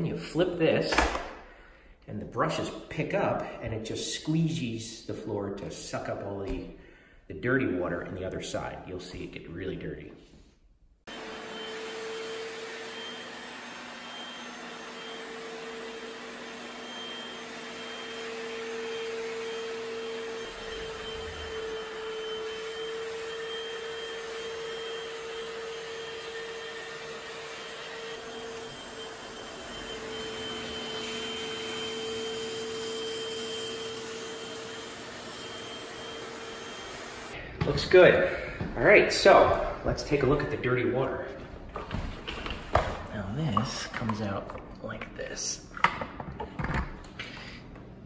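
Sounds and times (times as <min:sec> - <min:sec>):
floor scrubber motor whine: 0:11.1 - 0:37.4.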